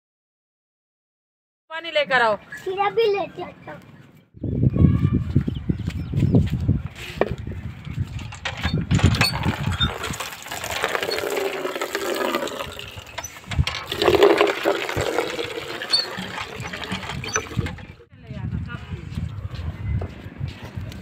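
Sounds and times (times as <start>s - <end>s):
hand pump knocking: 8.2s - 18.0s
water gushing into bucket: 9.2s - 18.0s.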